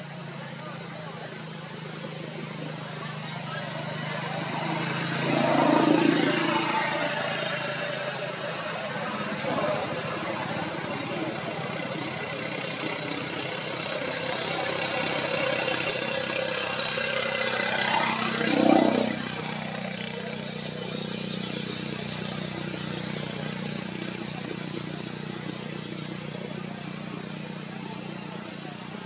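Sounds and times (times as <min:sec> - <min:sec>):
vehicle engine noise: 0:00.0 - 0:29.0
vehicle passing by: 0:03.2 - 0:12.4, 0:13.9 - 0:24.0.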